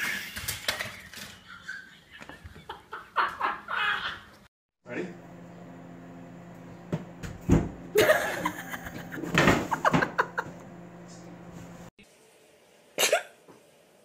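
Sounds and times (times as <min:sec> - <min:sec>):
person laughing loudly: 0:01.5 - 0:04.4, 0:08.0 - 0:10.6
low hum: 0:04.9 - 0:11.9.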